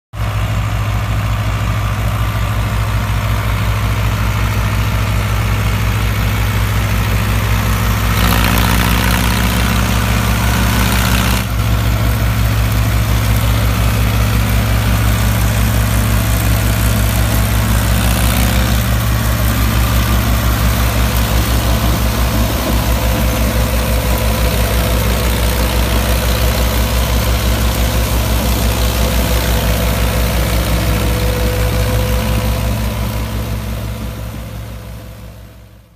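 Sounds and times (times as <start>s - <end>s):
tractor diesel engine running: 0.1s - 35.9s
straw reaper chopping stubble: 8.1s - 11.5s.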